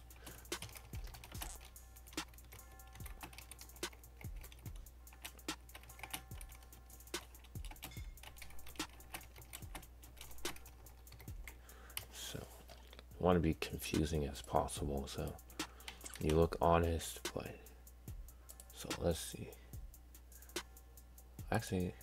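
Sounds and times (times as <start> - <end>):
computer keyboard typing: 0.0 - 12.1, 15.8 - 16.5.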